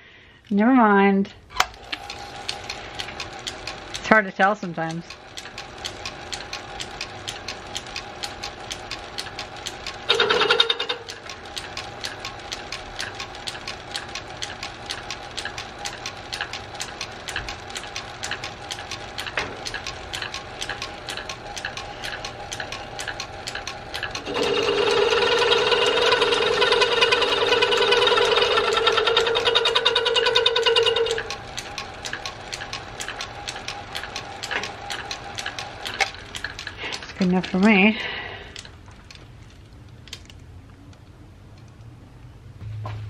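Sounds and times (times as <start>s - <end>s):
faint lathe hum: 1.5s - 39.8s
lathe drive ticking: 1.6s - 40.4s
cutting tool ringing on metal: 10.1s - 11.0s, 24.3s - 31.3s.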